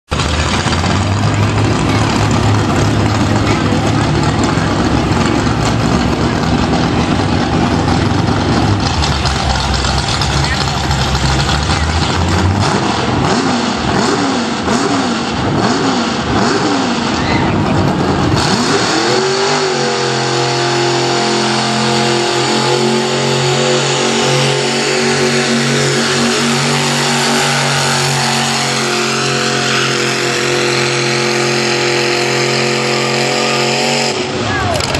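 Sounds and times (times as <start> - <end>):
tractor engine revving: 0.0 - 34.9.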